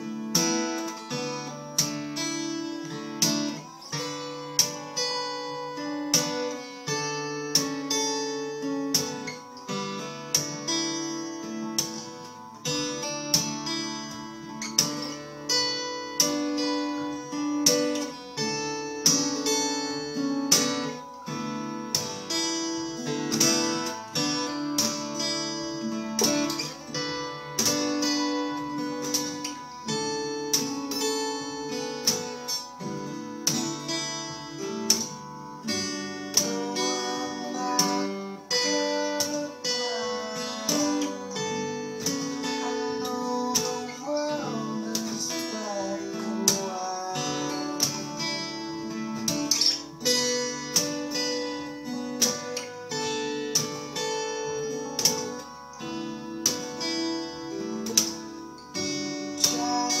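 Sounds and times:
fingerpicked acoustic guitar: 0.0 - 60.0
percussive hits on guitar strings: 34.8 - 36.7, 40.6 - 43.9, 57.8 - 60.0.

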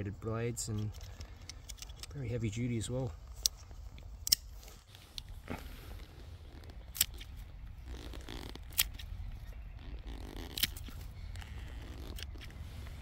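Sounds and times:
shears snipping plant stems: 6.6 - 12.6.

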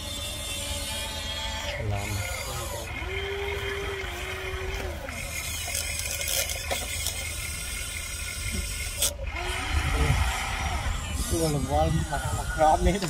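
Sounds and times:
electric motor whine: 0.0 - 13.0.

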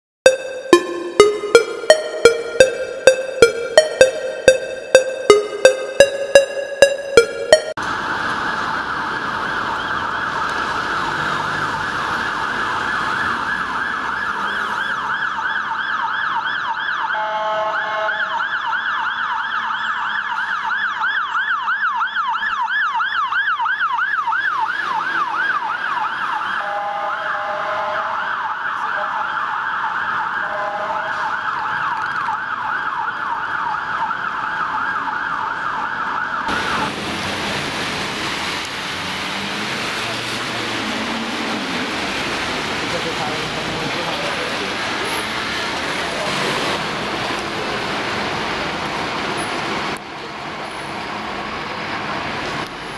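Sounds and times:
fire truck siren yelping: 0.2 - 38.6
air horn blasts: 17.2 - 18.2, 26.6 - 28.1, 30.5 - 31.1.

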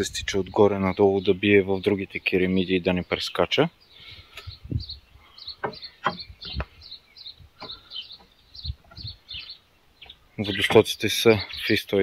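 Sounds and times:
small bird chirping: 0.8 - 12.0
dull knocks: 5.6 - 6.7.

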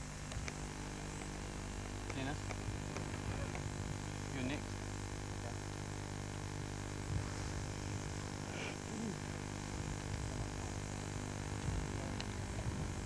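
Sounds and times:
background hiss and hum: 0.0 - 13.0.

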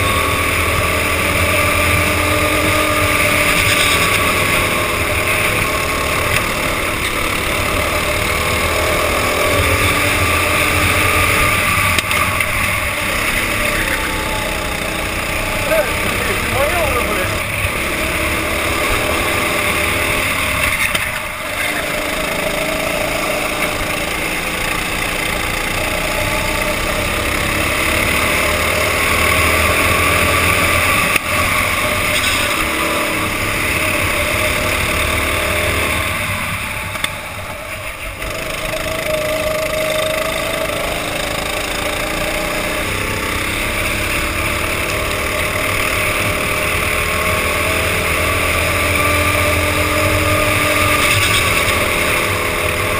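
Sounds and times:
go-kart engine running hard: 0.0 - 52.9
steady rushing noise: 0.0 - 52.9.

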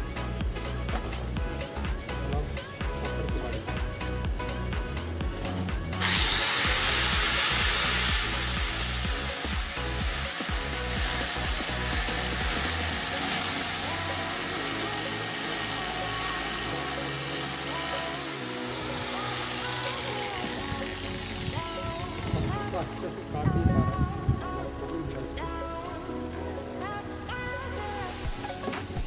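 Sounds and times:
cutting blade grinding: 6.0 - 23.3.

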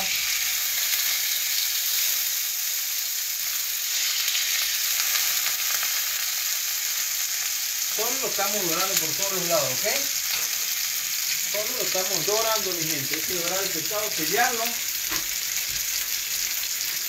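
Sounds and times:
fish sizzling in a frying pan: 0.0 - 17.0.

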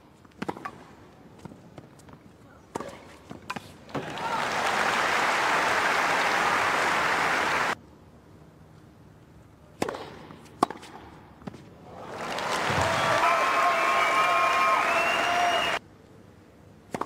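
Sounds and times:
crowd applause: 4.0 - 7.8, 12.0 - 15.8
racket hitting tennis ball: 9.8 - 11.6.

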